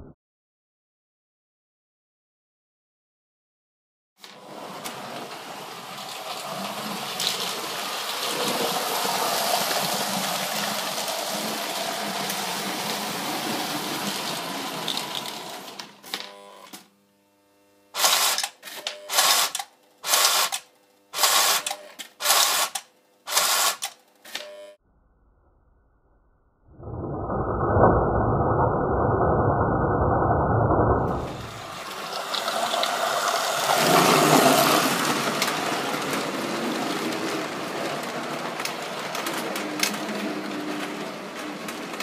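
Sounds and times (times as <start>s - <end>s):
toy train mechanical clatter: 4.2s - 16.8s, 18.0s - 24.4s, 32.1s - 42.0s.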